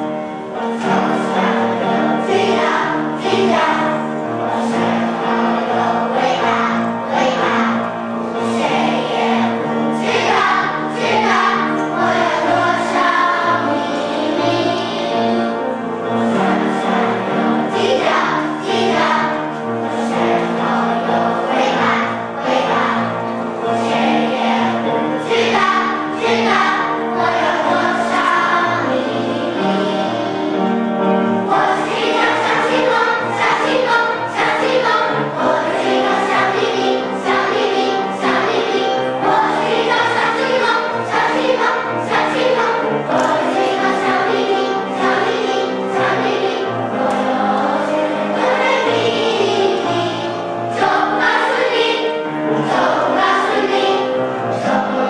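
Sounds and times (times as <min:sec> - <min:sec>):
children's choir singing: 0:00.0 - 0:55.0.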